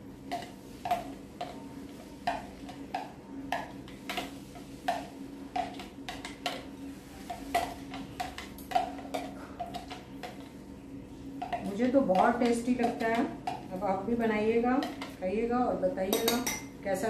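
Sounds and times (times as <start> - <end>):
faint steady hum: 0.0 - 17.0
spoon clinking against glass bowl: 16.1 - 16.7.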